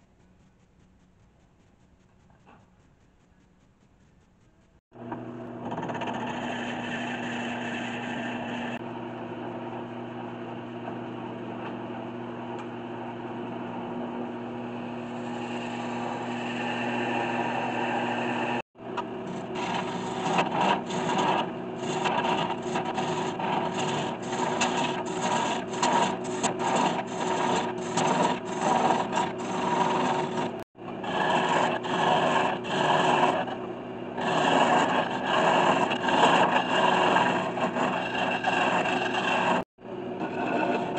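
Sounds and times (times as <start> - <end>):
lathe motor hum: 5.0 - 40.9
hollowing tool scraping wood: 5.6 - 8.8, 19.2 - 40.9
drill bit boring into wood: 19.6 - 33.5, 34.2 - 39.6.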